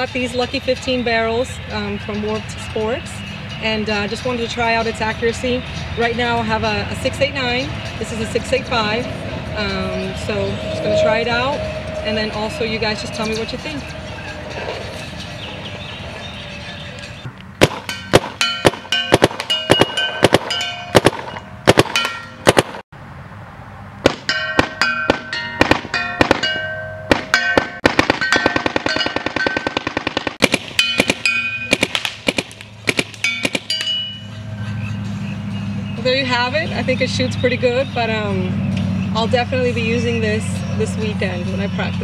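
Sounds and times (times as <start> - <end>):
paintball marker firing: 17.6 - 22.8, 27.8 - 33.8.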